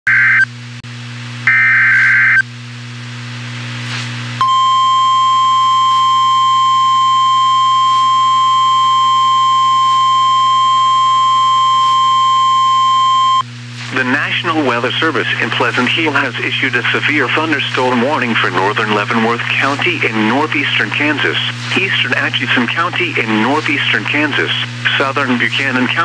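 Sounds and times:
low hum: 0.4s - 26.0s
steady warning alarm tone: 1.5s - 2.4s, 4.4s - 13.4s.

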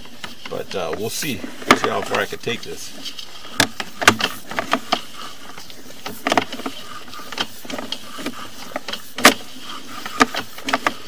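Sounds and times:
steady low hiss: 0.0s - 11.0s
push rod clicking and knocking: 3.6s - 5.0s.

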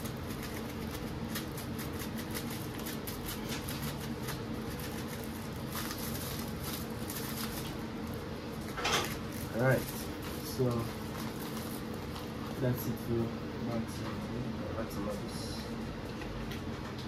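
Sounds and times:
plastic bag crinkling: 0.0s - 13.0s
steady low hum: 0.0s - 17.0s.

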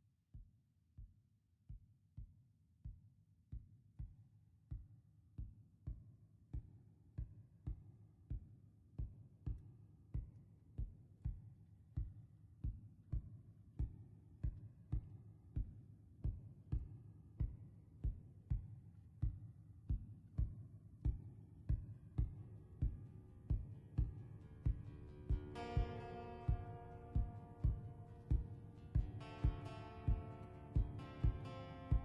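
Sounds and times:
soft low kick beat: 0.4s - 32.0s
faint held instrument tones: 23.6s - 32.0s.

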